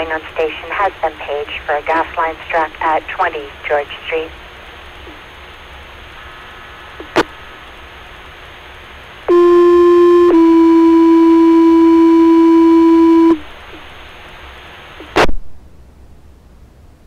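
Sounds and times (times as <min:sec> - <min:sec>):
radio hiss: 0:00.0 - 0:10.4, 0:13.3 - 0:15.4.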